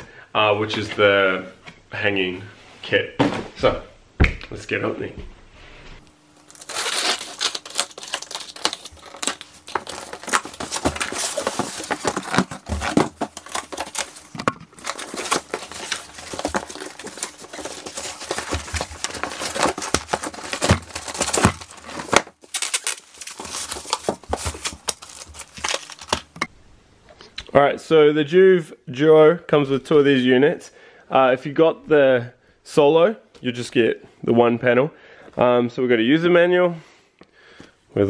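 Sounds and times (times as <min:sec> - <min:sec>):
cardboard tearing and rustling: 0:06.3 - 0:26.4.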